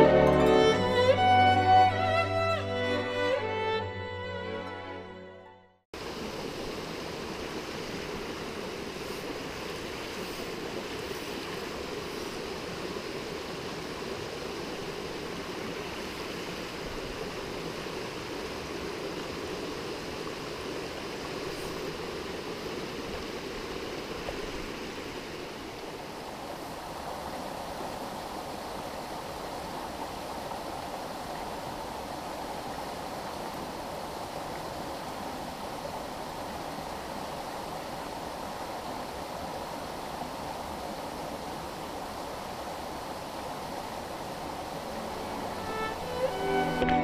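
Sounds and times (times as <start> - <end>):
stream running over rocks: 6.0 - 47.0.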